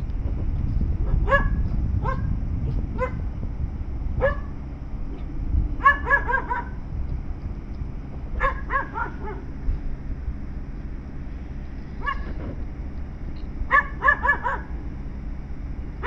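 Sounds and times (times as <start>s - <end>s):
steady low rumble: 0.0s - 16.0s
dog barking: 1.2s - 2.3s, 3.0s - 3.2s, 4.2s - 4.5s, 5.2s - 6.8s, 8.4s - 9.5s, 12.0s - 12.3s, 13.7s - 14.7s.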